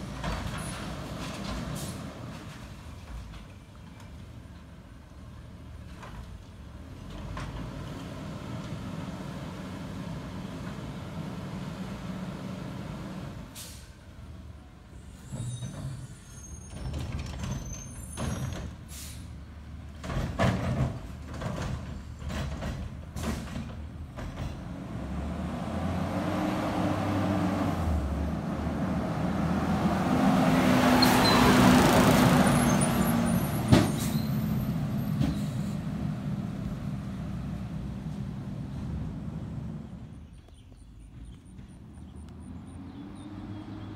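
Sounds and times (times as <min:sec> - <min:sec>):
knocks and clangs of cart: 0:00.0 - 0:03.6, 0:15.3 - 0:18.8, 0:20.0 - 0:24.8, 0:33.6 - 0:34.2.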